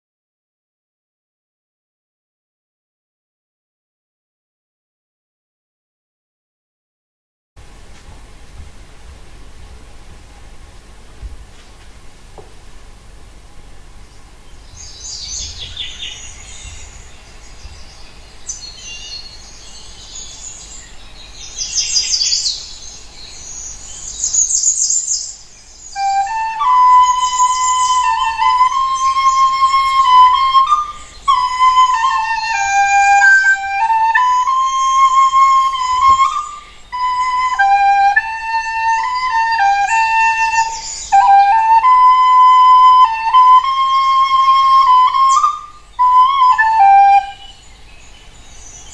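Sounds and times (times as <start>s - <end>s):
bird-like chirping: 14.0s - 33.7s
recorder playing slow melody: 26.0s - 47.6s.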